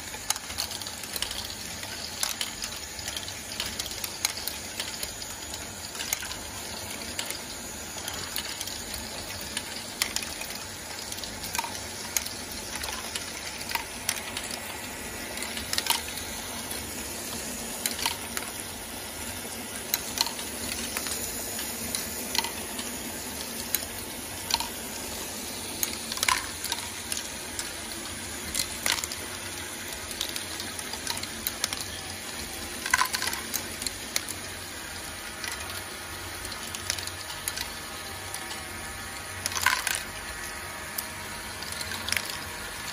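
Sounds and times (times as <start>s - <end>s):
plastic balls rattling through modules: 0.0s - 42.9s
balls clacking on plastic parts: 0.1s - 18.7s, 21.9s - 24.8s, 25.8s - 27.8s, 28.4s - 34.5s, 39.2s - 40.2s.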